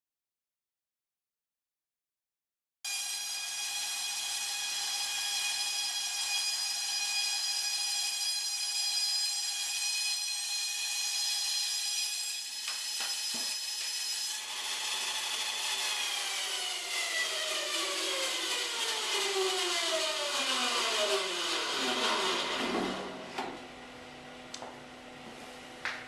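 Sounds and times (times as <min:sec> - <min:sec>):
band saw winding down: 0:02.9 - 0:23.5
band saw cutting log: 0:02.9 - 0:23.6.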